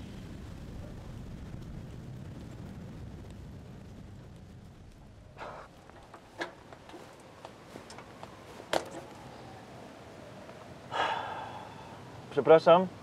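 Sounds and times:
wheelchair wheels clicking and knocking: 0:05.4 - 0:09.1.

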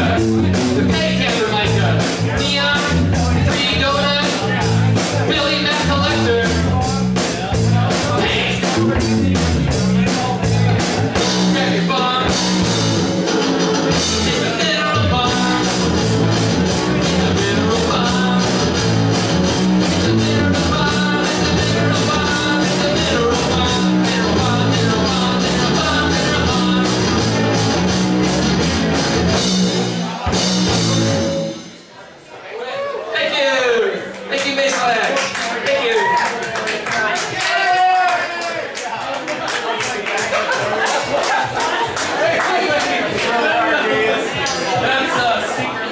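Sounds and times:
live rock band playing: 0:00.0 - 0:32.0.

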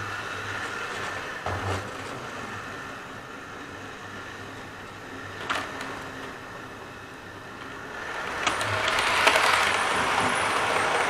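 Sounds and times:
wheels on rails: 0:00.0 - 0:11.0
model train motor hum: 0:07.5 - 0:11.0.

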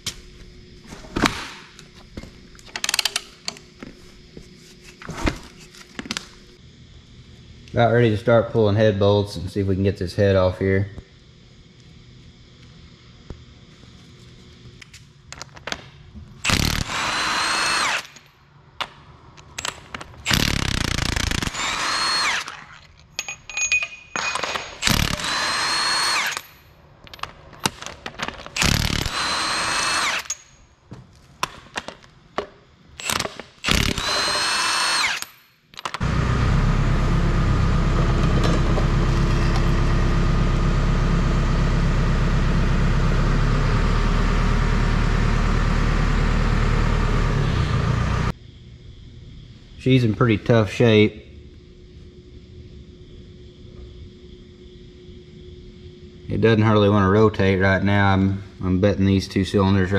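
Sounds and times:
impact wrench spinning: 0:16.5 - 0:18.3, 0:19.4 - 0:26.6, 0:28.5 - 0:30.6, 0:33.0 - 0:35.5
machine drone with low hum: 0:31.8 - 0:59.9.

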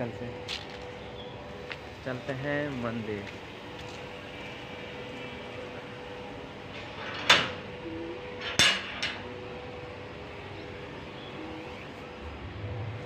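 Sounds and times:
sharp metallic clanks: 0:08.4 - 0:09.3.

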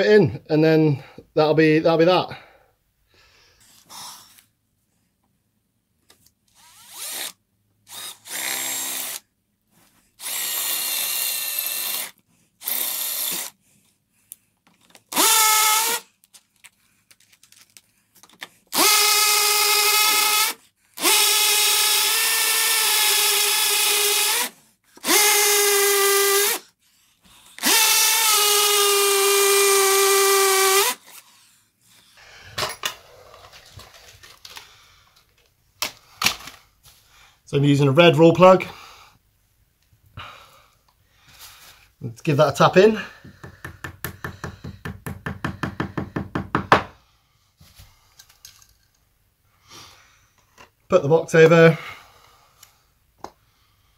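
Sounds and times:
drill boring into masonry: 0:06.5 - 0:09.2, 0:10.2 - 0:13.6, 0:15.1 - 0:16.1, 0:18.7 - 0:26.6, 0:27.6 - 0:31.2.

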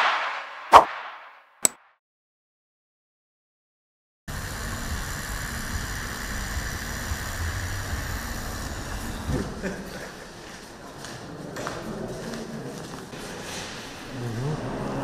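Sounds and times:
outdoor rumble with hiss: 0:04.3 - 0:09.8.

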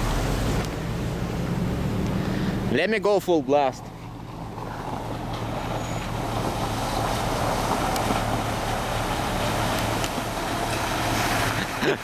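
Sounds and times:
engine drone: 0:00.0 - 0:12.0
water and mud splashing: 0:00.0 - 0:12.0.

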